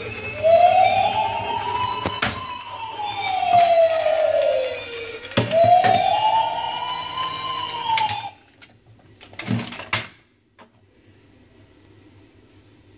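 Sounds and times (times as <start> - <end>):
toy siren wail: 0.0 - 8.5.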